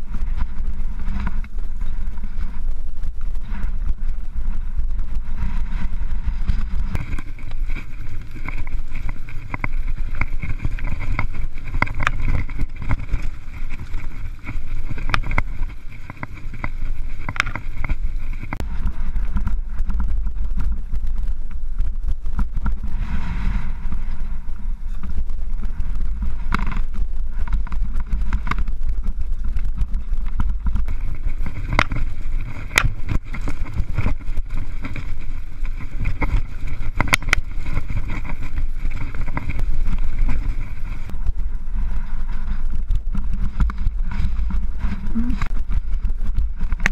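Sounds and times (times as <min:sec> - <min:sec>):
bike chain and frame rattling: 0:00.0 - 0:23.0, 0:23.8 - 0:46.9
wind buffeting microphone: 0:00.0 - 0:46.9
tyres crunching over stones: 0:06.0 - 0:18.7, 0:25.0 - 0:41.4.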